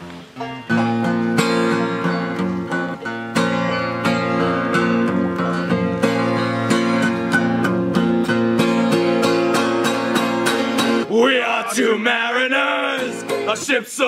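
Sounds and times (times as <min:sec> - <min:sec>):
banjo playing: 0:00.0 - 0:13.8
acoustic guitar strumming: 0:00.0 - 0:14.0
man singing: 0:11.0 - 0:14.0.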